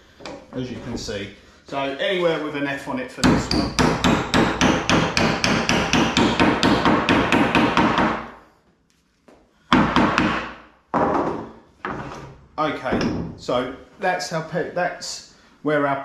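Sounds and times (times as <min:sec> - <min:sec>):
hammer tapping pegs: 0:03.2 - 0:08.2.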